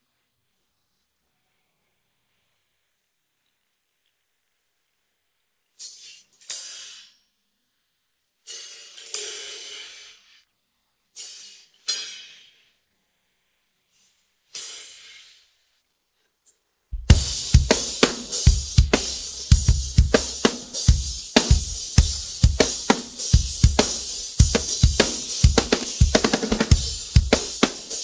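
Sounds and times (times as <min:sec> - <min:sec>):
full drum kit playing: 0:17.0 - 0:28.0.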